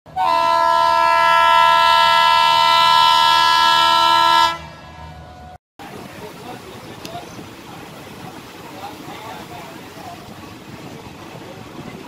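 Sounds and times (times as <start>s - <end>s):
horn blast: 0.1s - 4.8s.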